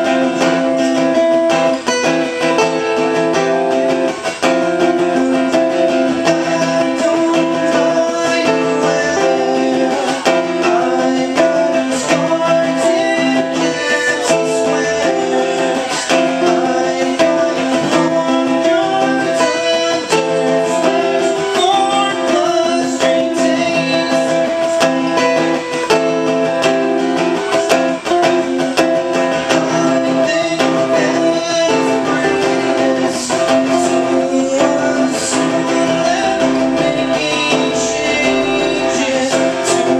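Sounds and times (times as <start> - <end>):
acoustic guitars strumming and picking: 0.0 - 39.9.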